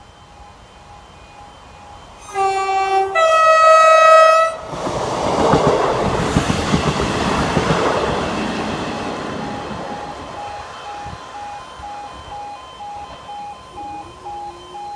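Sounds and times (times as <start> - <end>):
train rumbling past: 0.0 - 14.9
two-note train horn: 2.2 - 4.7, 10.4 - 14.9.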